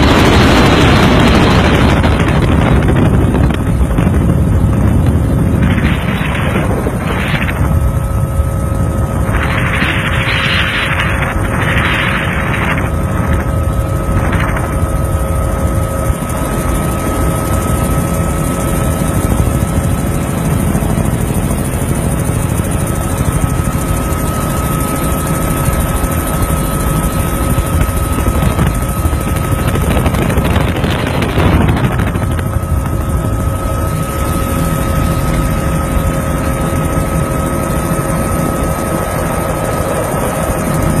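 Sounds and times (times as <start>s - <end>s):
helicopter engine and rotor: 0.0s - 41.0s.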